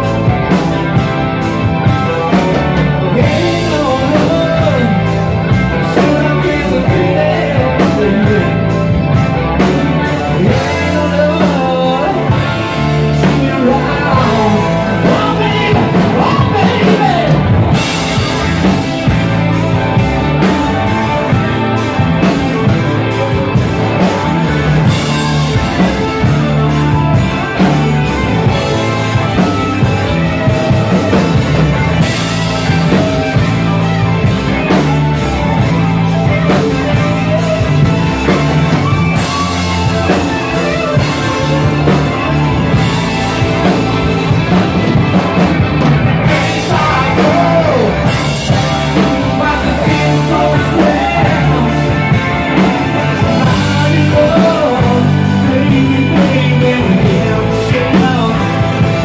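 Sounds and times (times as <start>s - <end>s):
bass guitar: 0.0s - 59.0s
drum kit: 0.0s - 59.0s
electric guitars: 0.0s - 59.0s
person singing: 2.5s - 8.8s, 10.0s - 18.8s, 46.2s - 59.0s.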